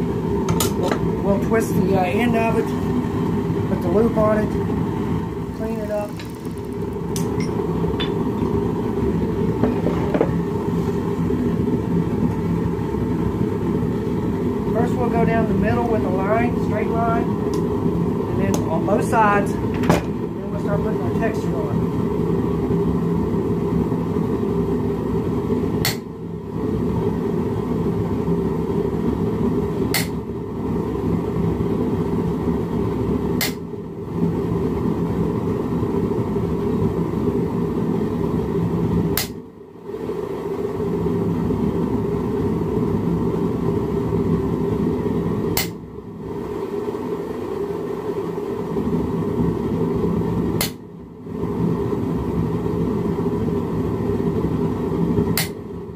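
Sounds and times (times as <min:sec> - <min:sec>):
loud steady low roar: 0:00.0 - 0:55.9
sharp click: 0:29.9 - 0:30.2, 0:45.6 - 0:45.8, 0:55.4 - 0:55.6.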